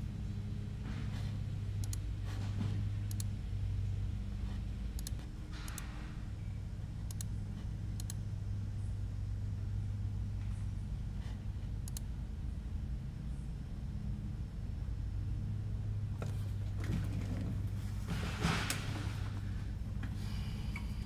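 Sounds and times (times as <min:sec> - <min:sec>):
low hum: 0:00.0 - 0:21.0
computer mouse clicking: 0:01.8 - 0:02.1, 0:03.0 - 0:03.4, 0:04.9 - 0:05.9, 0:07.0 - 0:07.4, 0:08.0 - 0:08.2, 0:11.8 - 0:12.1.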